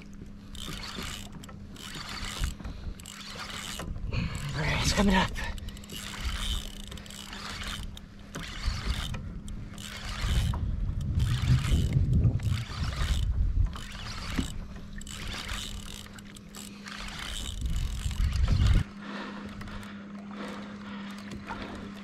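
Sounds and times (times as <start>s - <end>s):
water splashing against kayak: 0.0s - 22.0s
wind buffeting microphone: 8.5s - 15.9s, 17.2s - 18.9s.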